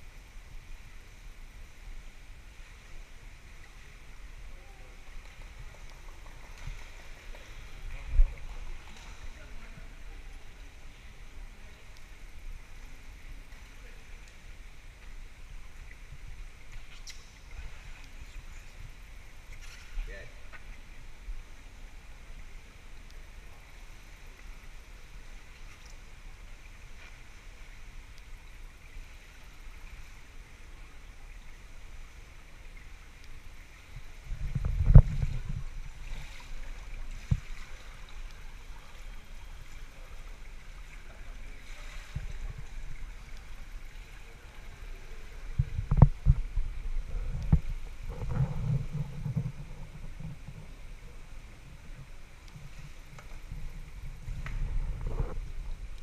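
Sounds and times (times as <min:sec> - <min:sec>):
water lapping in a pool: 0:00.0 - 0:56.0
water splash and slosh: 0:32.4 - 0:50.6.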